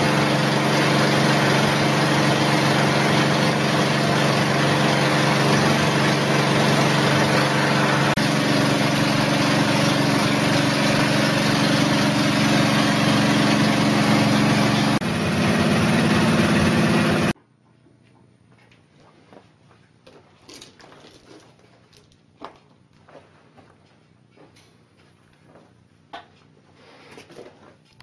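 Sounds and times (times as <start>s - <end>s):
machine hum with rushing noise: 0.0s - 17.4s.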